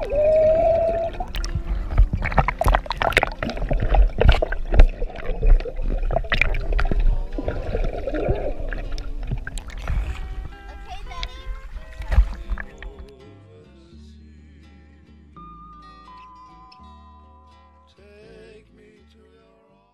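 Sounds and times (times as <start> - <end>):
underwater rumble and gurgling: 0.0 - 13.1.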